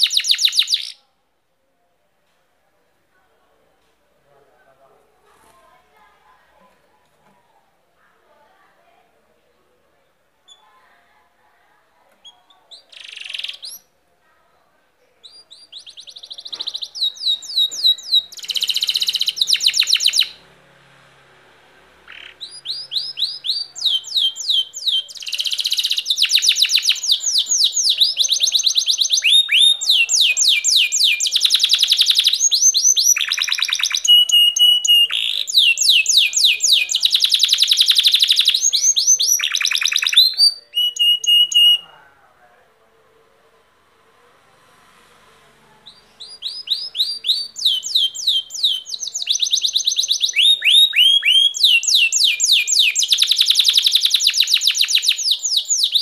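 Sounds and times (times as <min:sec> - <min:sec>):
canary singing rapid trills: 0:00.0 - 0:01.0, 0:12.2 - 0:13.9, 0:15.2 - 0:20.4, 0:22.0 - 0:42.0, 0:45.8 - 0:56.0.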